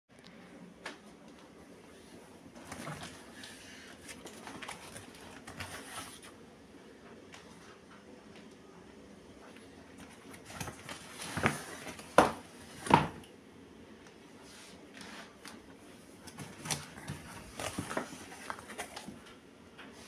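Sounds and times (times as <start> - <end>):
handling knocks and rustles: 2.5 - 6.3, 16.2 - 19.3.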